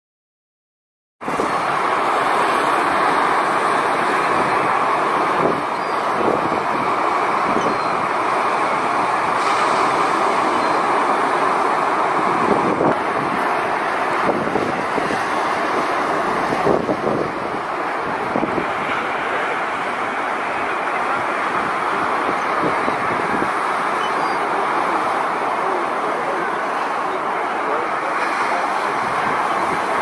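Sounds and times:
strong wind rushing: 1.2s - 23.9s
waves breaking on shore: 1.2s - 30.0s.

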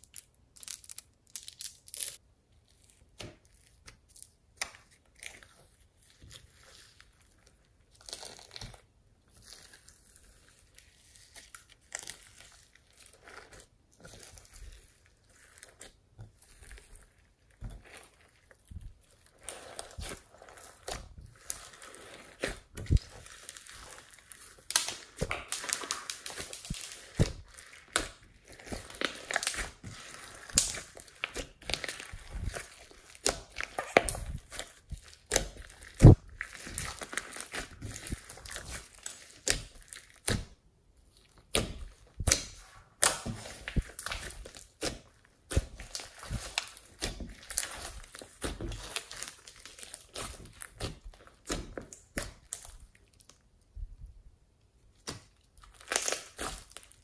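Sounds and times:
slime squishing and popping: 10.8s - 53.4s, 54.9s - 57.0s.

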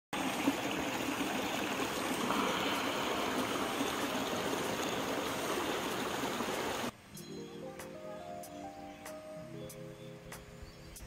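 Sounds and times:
stream rushing over boulders: 0.2s - 7.0s.

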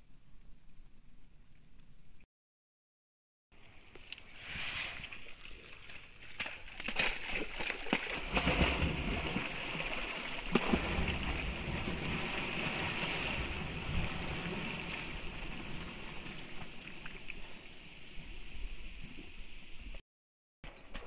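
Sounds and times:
dog splashing through water: 5.5s - 16.0s.

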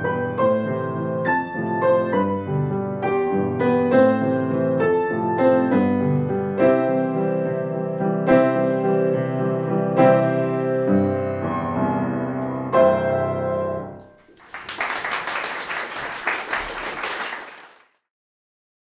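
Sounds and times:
grand piano playing waltz: 0.0s - 14.2s
audience applause: 14.2s - 18.0s.

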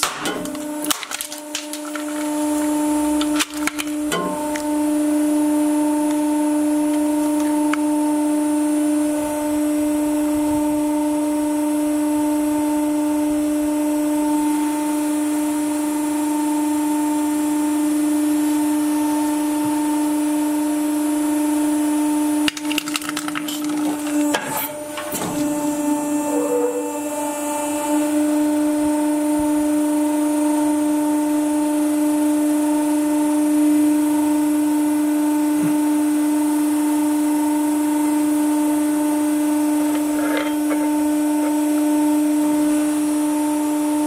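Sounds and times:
hydraulic press humming: 0.0s - 11.6s, 22.2s - 31.1s, 38.4s - 44.0s.

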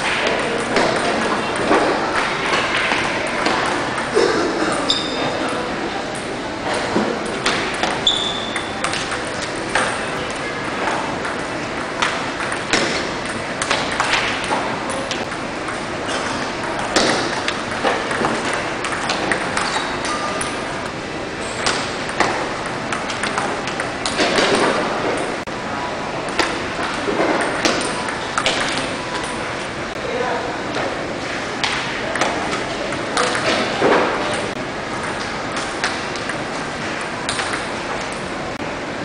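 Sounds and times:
ping pong ball clicking: 7.2s - 20.6s, 21.6s - 25.4s, 26.3s - 29.4s, 37.3s - 38.2s.

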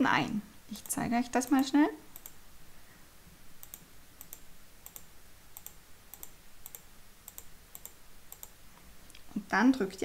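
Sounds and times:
computer mouse clicks: 0.8s - 2.4s, 3.6s - 8.6s.

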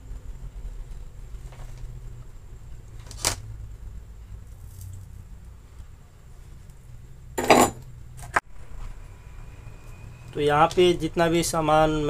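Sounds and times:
low steady hum: 0.0s - 12.0s
soldering iron clattering down: 7.4s - 7.8s.

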